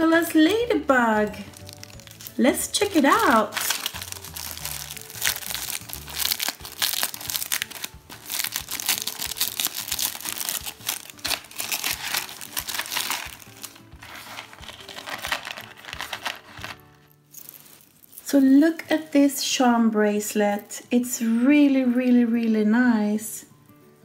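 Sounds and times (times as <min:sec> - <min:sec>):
background music: 0:00.0 - 0:24.0
plastic wrapping crinkling: 0:01.2 - 0:18.8.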